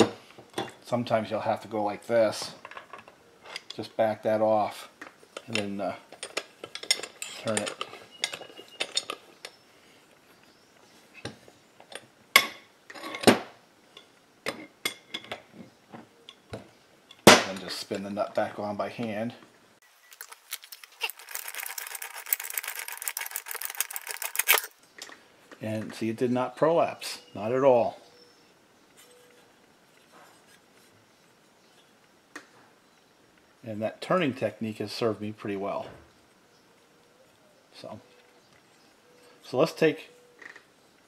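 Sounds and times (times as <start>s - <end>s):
metal tools clinking and knocking: 5.4s - 9.6s.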